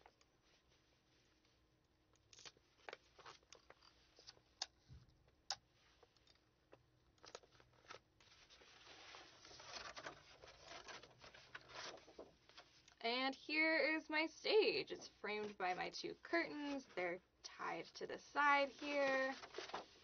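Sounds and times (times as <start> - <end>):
paper and cardboard rustling: 7.2 - 12.8, 18.4 - 20.0.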